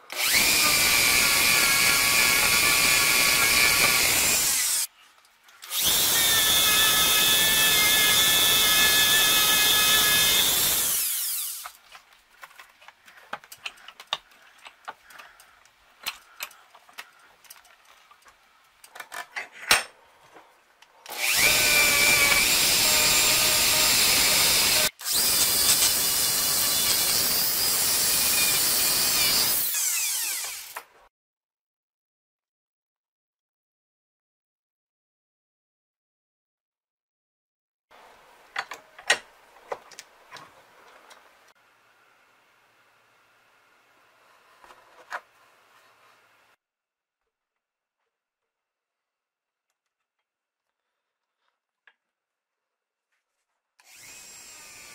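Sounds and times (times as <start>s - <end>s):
power tool whining: 0.1s - 4.9s, 5.6s - 11.8s, 21.1s - 30.9s, 53.8s - 54.9s.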